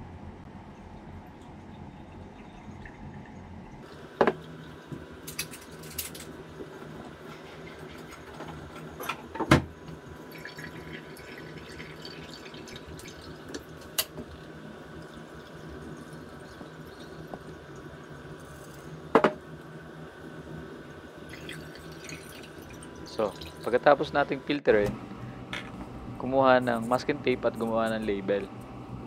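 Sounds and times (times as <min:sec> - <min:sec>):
liquid trickling and dripping: 0:10.2 - 0:17.9, 0:21.3 - 0:23.7.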